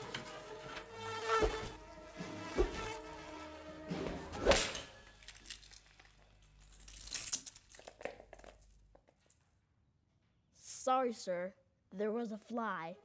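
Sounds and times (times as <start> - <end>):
fly buzzing: 0.3 - 4.3.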